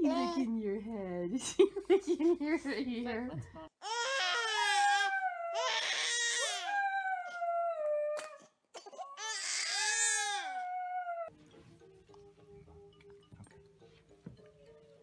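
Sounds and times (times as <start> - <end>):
baby crying: 3.8 - 7.4, 8.2 - 11.3
dog howling: 4.7 - 8.4.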